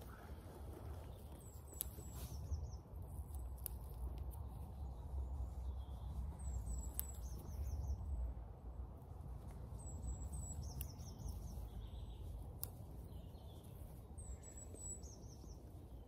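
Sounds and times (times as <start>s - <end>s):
songbird singing: 0.0s - 16.0s
steady low rumble: 0.0s - 16.0s.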